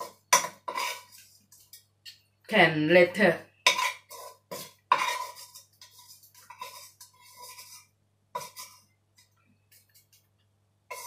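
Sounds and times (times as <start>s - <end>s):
spoon scraping glass jar: 0.0s - 1.8s, 3.6s - 8.9s.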